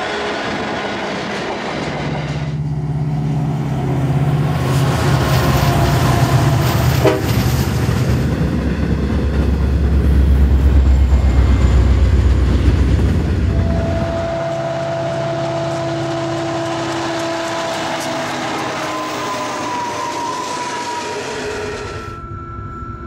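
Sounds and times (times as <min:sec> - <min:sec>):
locomotive engine drone: 0:00.0 - 0:23.0
ore wagons rolling on rails: 0:16.2 - 0:22.1.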